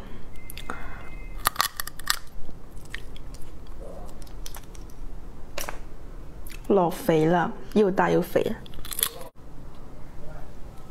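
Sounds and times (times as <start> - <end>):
chewing with wet clicks: 1.4 - 5.0.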